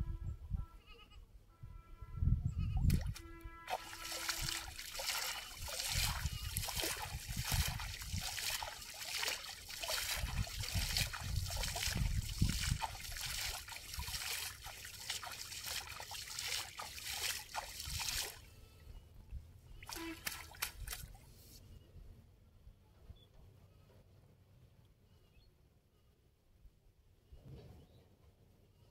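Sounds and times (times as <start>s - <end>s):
water splashing and trickling: 2.8s - 18.5s, 19.8s - 21.4s.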